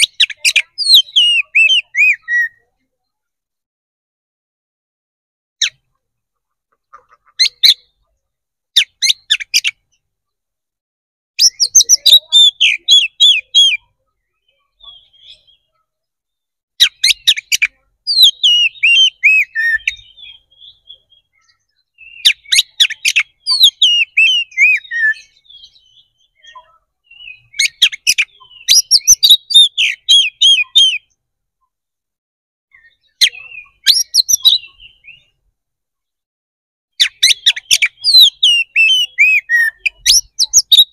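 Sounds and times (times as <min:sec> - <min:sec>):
bird singing loud whistled song: 0:00.0 - 0:02.7, 0:05.6 - 0:05.9, 0:07.4 - 0:08.0, 0:08.8 - 0:10.1, 0:11.4 - 0:31.2, 0:32.7 - 0:35.5, 0:36.9 - 0:40.9.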